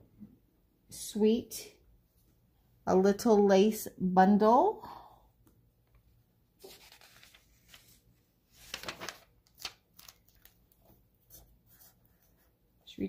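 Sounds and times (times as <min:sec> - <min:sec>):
paper page turning: 0:06.6 - 0:12.0.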